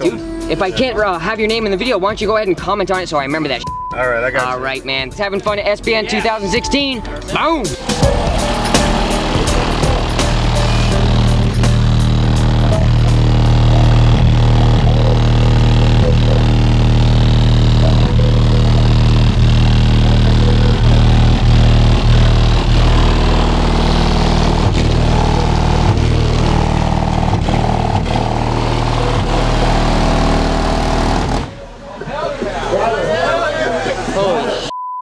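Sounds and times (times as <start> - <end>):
deep subwoofer bass notes: 6.5 - 31.8.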